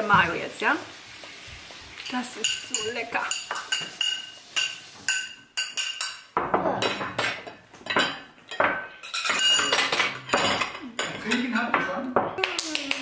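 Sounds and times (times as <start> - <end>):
tableware clinking: 2.0 - 12.4.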